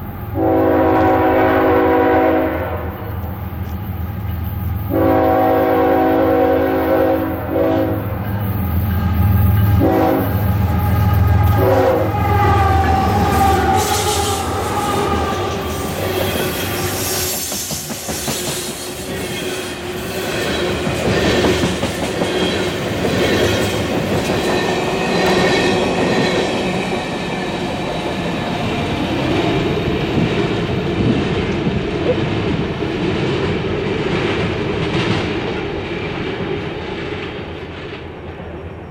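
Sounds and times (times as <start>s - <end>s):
locomotive horn blasts: 0.4s - 3.2s, 4.9s - 8.2s, 8.9s - 16.5s
train wheels clattering: 12.4s - 28.8s.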